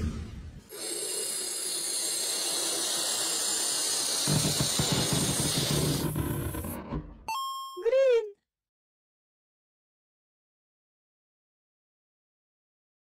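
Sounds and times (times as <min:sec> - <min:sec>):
balloon pump hissing: 0:00.6 - 0:06.8.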